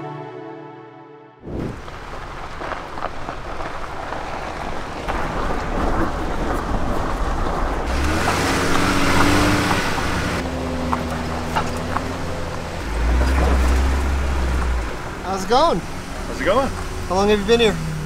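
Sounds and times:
tyre and wind rushing: 1.4 - 15.2
low engine hum: 1.7 - 18.0.

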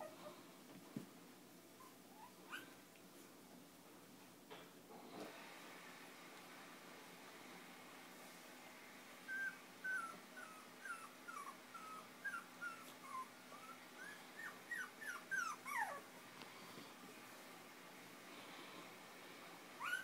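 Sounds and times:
puppy whimpering: 1.8 - 2.8, 9.3 - 16.1, 19.8 - 20.0.

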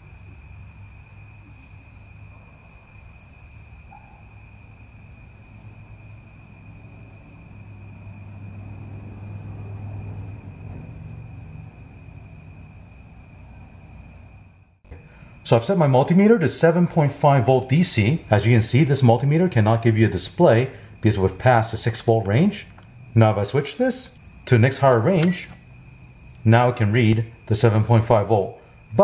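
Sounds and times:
low hum: 5.0 - 15.7.

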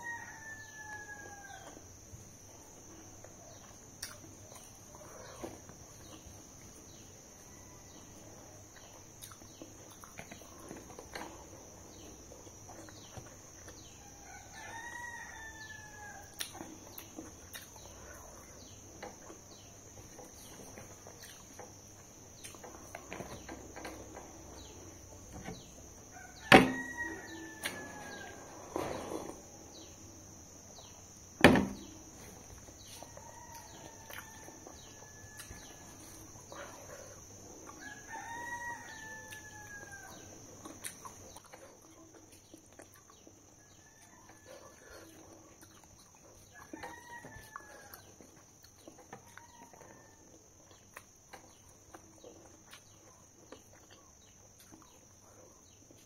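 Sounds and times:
rooster crowing: 0.0 - 1.9, 13.8 - 16.4, 23.1 - 29.9, 31.8 - 40.5, 46.5 - 48.2, 49.2 - 50.4
sharp knocks: 26.5 - 26.8, 31.4 - 31.8.

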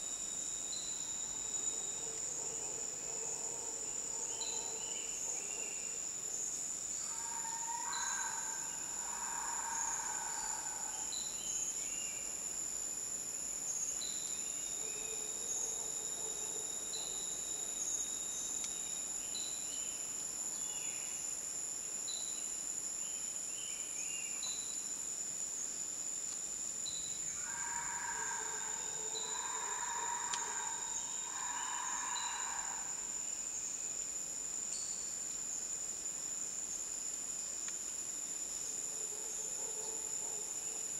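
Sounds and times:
insects droning: 0.0 - 40.9.

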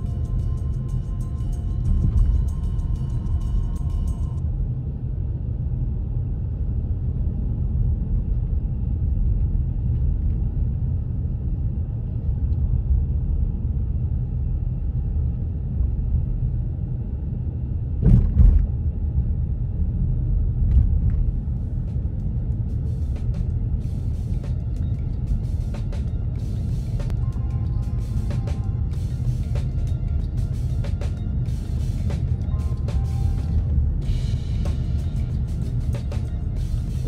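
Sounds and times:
car cabin road and engine rumble: 0.0 - 37.0
double thump: 18.0 - 18.7.

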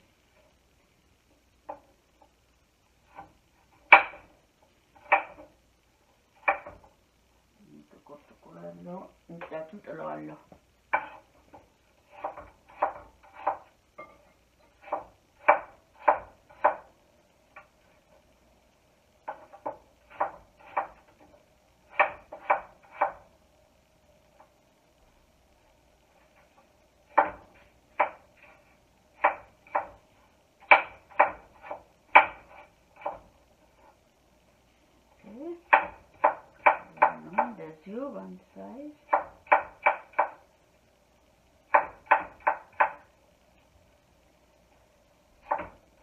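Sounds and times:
knife chopping on wooden board: 3.1 - 4.3, 5.0 - 5.5, 6.4 - 6.9, 10.9 - 13.7, 14.8 - 16.9, 19.3 - 21.0, 21.9 - 23.2, 27.1 - 28.6, 29.2 - 30.0, 30.6 - 33.2, 35.7 - 37.6, 39.1 - 40.4, 41.7 - 43.0, 45.4 - 45.8.

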